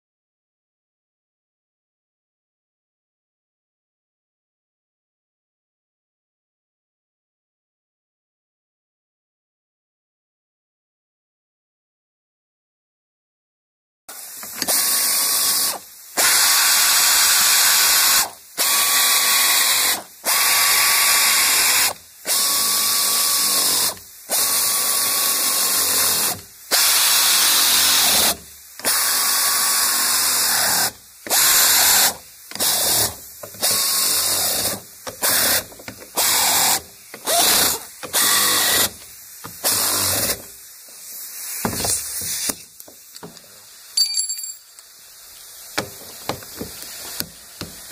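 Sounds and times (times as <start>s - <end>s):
pneumatic air wrench whining: 14.1s - 43.4s.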